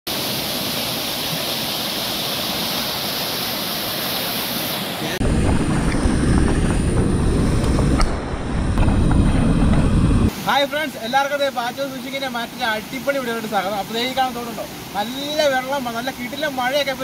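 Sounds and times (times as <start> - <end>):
water rushing over dam: 0.1 - 8.8, 10.3 - 17.0
low wind rumble on microphone: 5.2 - 10.3.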